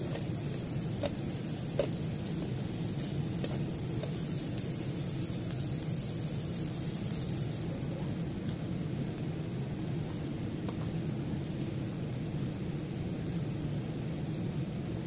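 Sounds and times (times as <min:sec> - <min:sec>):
spatula tossing food: 0:00.0 - 0:07.5
rice sizzling in a wok: 0:00.0 - 0:15.0.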